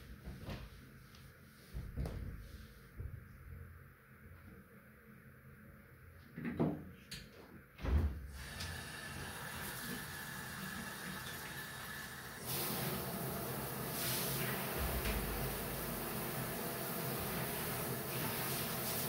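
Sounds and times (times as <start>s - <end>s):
shower water running into bathtub: 8.3s - 19.0s.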